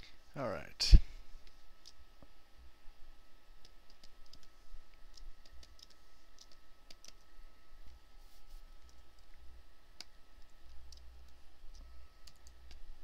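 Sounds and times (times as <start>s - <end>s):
computer mouse clicks: 3.6s - 8.0s, 10.0s - 12.8s.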